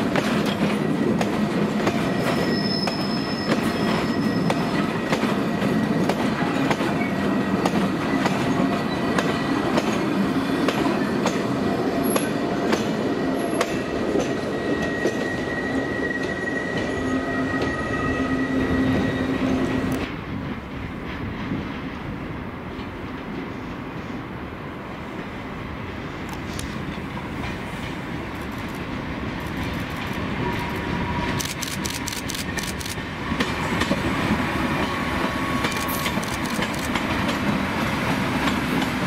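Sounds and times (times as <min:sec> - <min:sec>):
high wheel squeal: 0:02.1 - 0:04.8, 0:14.5 - 0:19.9.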